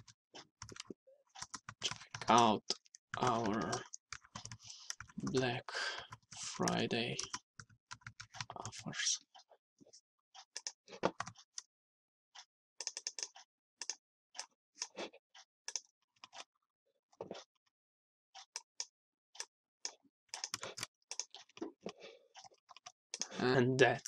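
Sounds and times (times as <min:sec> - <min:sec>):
keyboard and mouse clicking: 0:00.0 - 0:05.4, 0:06.0 - 0:08.7, 0:12.8 - 0:15.0, 0:20.4 - 0:21.5, 0:22.4 - 0:24.0.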